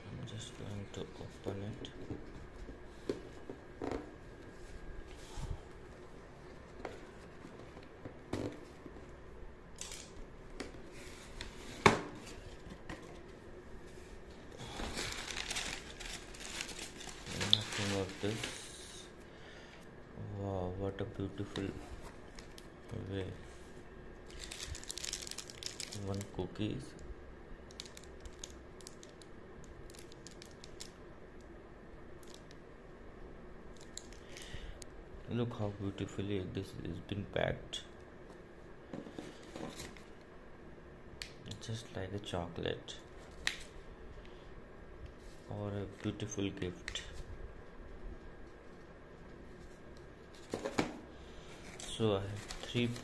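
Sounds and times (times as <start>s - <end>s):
low room hum: 0.0s - 53.0s
packing paper rustling: 14.6s - 19.0s, 24.2s - 26.5s, 51.5s - 53.0s
plastic wrapper crinkling: 14.7s - 18.7s, 24.2s - 26.5s, 27.7s - 31.0s.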